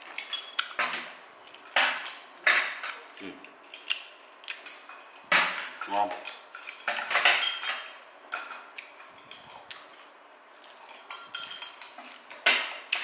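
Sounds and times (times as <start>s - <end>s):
utensils clinking on ceramic plates: 5.7s - 9.8s, 10.9s - 13.0s.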